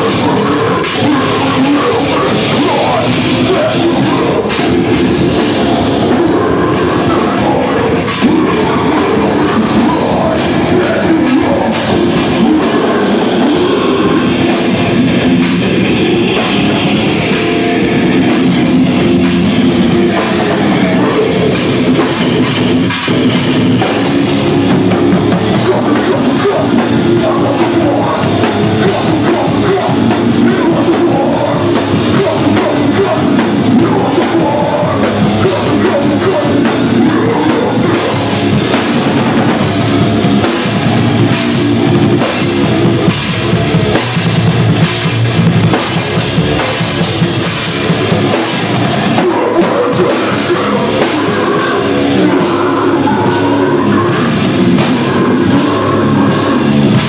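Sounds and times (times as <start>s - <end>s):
distorted electric guitars: 0.0s - 57.0s
drum kit: 0.0s - 57.0s.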